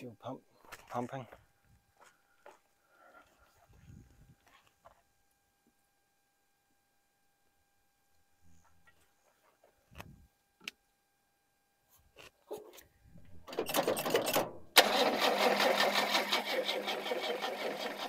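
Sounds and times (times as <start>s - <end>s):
starter motor cranking engine: 13.5s - 18.0s.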